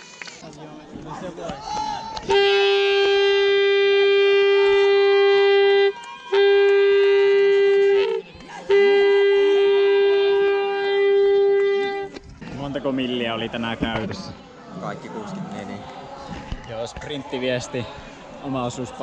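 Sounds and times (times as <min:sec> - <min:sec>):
horn blasts: 0:02.2 - 0:12.2.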